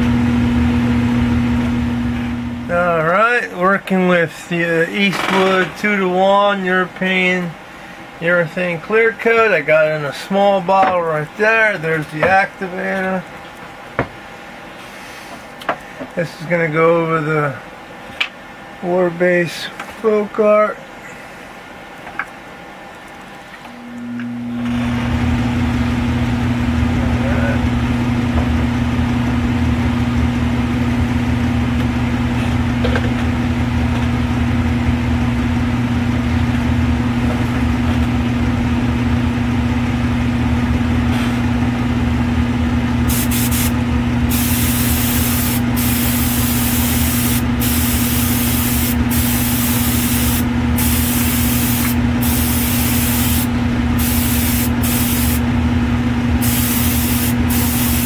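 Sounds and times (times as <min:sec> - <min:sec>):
fan humming: 0:00.0 - 0:58.0
airbrush spraying hiss: 0:43.1 - 0:55.4, 0:56.4 - 0:58.0.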